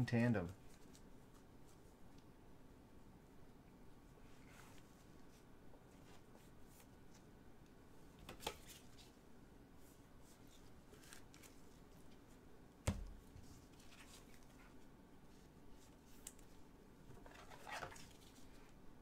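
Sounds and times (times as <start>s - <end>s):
faint rustles of packaging: 0.5s - 2.3s, 4.1s - 7.4s, 8.3s - 12.5s, 13.3s - 18.9s.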